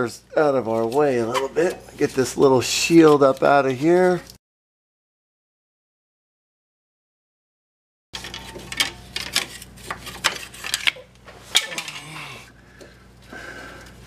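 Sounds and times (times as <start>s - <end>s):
tools clinking and knocking: 8.2s - 9.5s, 10.8s - 12.1s
faint steady hum: 8.2s - 14.0s.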